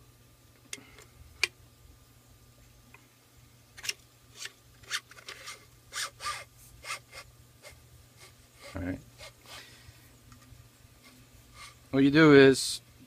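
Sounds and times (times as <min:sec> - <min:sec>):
metal parts clicking and scraping: 0:03.8 - 0:06.4.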